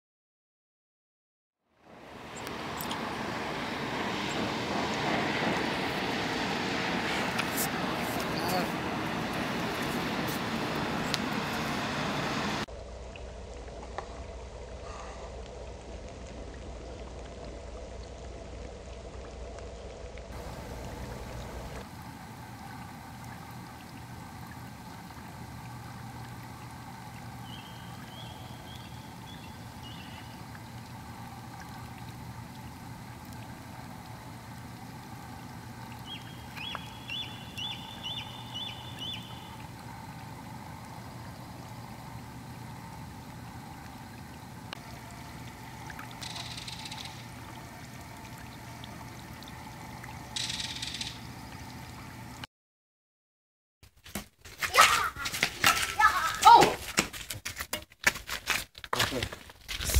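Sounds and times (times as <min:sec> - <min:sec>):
low steady hum: 0:01.8 - 0:52.5
soft water trickling: 0:01.8 - 0:52.5
bird chirping: 0:27.4 - 0:30.4, 0:36.0 - 0:39.6.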